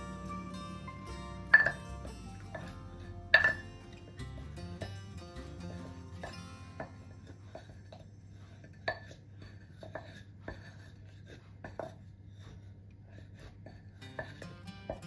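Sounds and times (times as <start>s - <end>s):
wooden pestle pounding in mortar: 0.0s - 8.0s.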